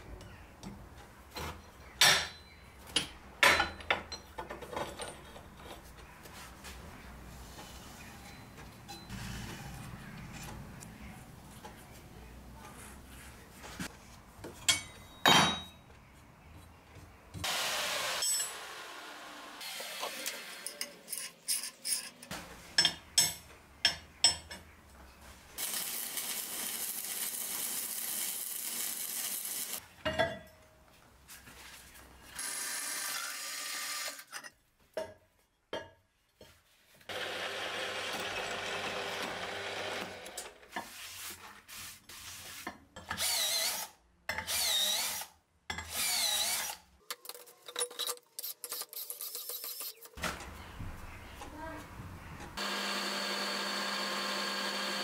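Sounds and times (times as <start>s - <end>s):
cordless drill bursts: 52.6s - 55.0s
drills boring steel: 52.6s - 55.0s.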